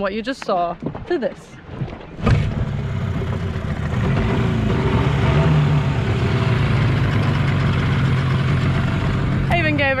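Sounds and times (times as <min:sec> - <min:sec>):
outboard motor running: 0:02.1 - 0:10.0.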